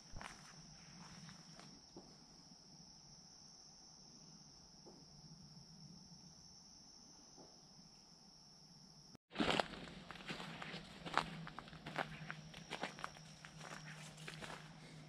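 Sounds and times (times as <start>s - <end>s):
insects buzzing: 0.0s - 15.0s
footsteps through leaf litter: 9.3s - 14.8s.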